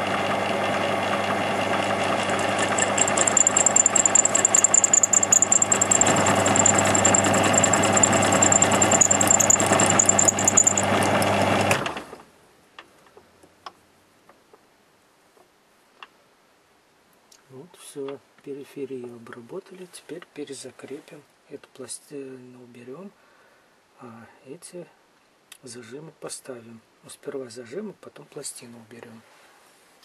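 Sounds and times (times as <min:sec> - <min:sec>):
lathe tool cutting metal: 0:00.0 - 0:11.9
lathe motor hum: 0:00.0 - 0:12.2.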